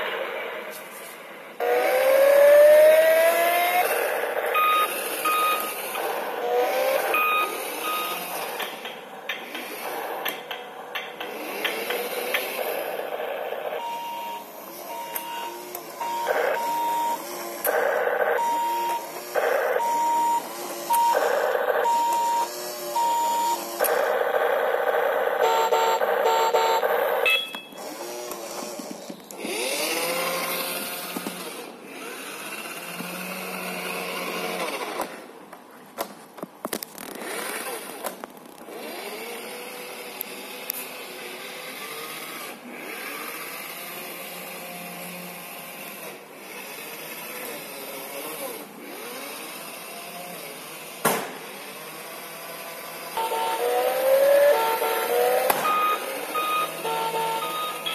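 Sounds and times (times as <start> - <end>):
electronic tones: 3.7 - 8.4, 13.7 - 27.8, 53.2 - 57.9
toy beeping: 4.5 - 8.8, 13.8 - 17.3, 18.4 - 19.2, 19.8 - 24.1, 25.3 - 27.8, 53.1 - 57.9
electric motor whine: 38.7 - 57.9.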